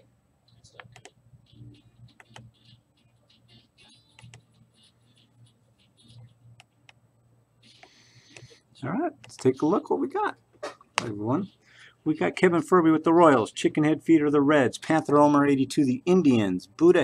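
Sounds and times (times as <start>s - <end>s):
low steady hum: 0.0s - 17.0s
keyboard and mouse clicks: 0.5s - 2.8s, 4.2s - 4.5s, 7.7s - 8.6s.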